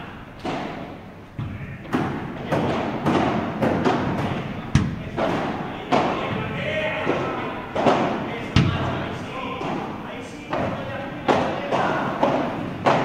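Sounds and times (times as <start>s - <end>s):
rackets hitting ball: 0.4s - 13.0s
ball bouncing: 7.8s - 9.0s.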